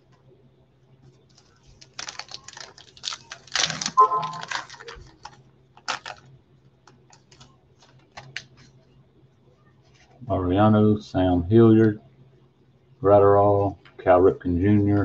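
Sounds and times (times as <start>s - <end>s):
wrapper crinkling and tearing: 1.3s - 6.3s, 6.9s - 8.7s.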